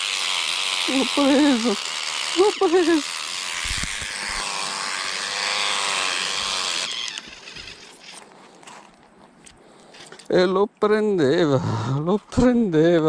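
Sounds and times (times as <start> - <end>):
small electric motor running: 0.0 - 8.3.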